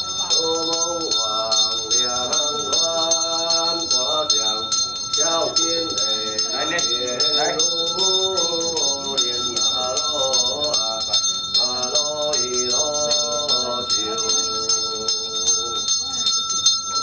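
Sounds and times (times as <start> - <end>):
small bell ringing rapidly: 0.0 - 17.0.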